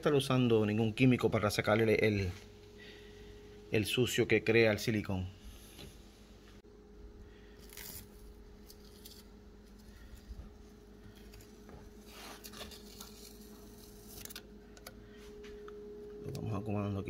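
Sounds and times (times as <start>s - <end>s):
tape peeling off plastic: 7.6s - 10.2s, 11.1s - 14.5s.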